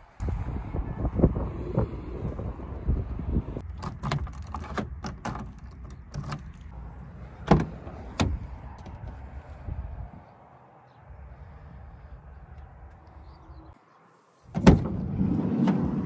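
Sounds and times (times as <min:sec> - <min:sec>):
car door handle and latch clack: 0:03.6 - 0:06.7, 0:07.4 - 0:09.0
car door opening click: 0:07.4 - 0:09.0.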